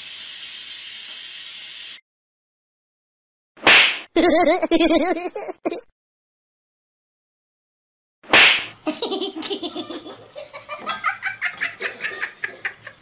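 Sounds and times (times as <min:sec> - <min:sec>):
rapid pulsing laughter: 0:08.9 - 0:13.0.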